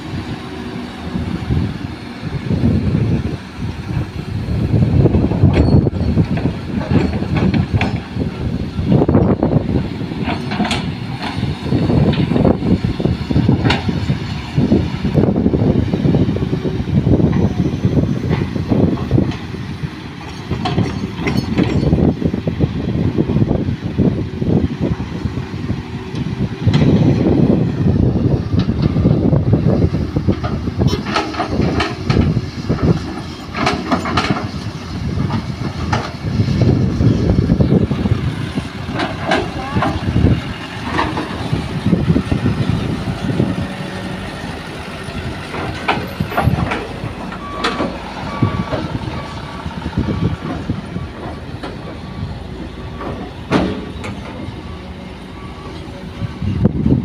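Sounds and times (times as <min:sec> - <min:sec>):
soil and rock clanking: 0:00.0 - 0:23.8, 0:24.5 - 0:57.0
diesel engines running: 0:00.0 - 0:57.0
reversing alarm beeping: 0:47.3 - 0:52.1, 0:53.9 - 0:56.5.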